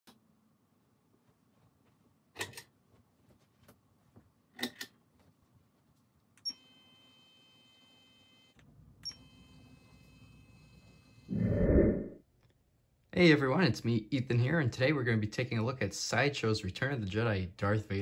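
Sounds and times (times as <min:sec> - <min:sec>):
small electric motor whine: 0:06.6 - 0:08.6, 0:09.2 - 0:11.3.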